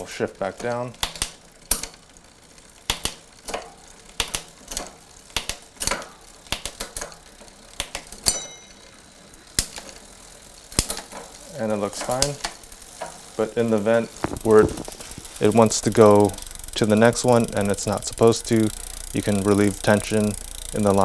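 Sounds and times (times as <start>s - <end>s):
bike gear shifting clicks: 0.6s - 2.1s, 2.7s - 8.3s, 9.5s - 10.1s, 14.1s - 21.0s
brief metallic ring: 8.3s - 8.9s.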